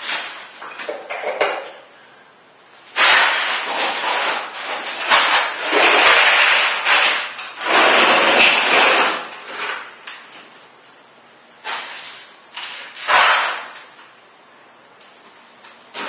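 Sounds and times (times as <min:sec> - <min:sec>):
wood panels scraping on floor: 0:02.9 - 0:10.0, 0:11.6 - 0:14.0.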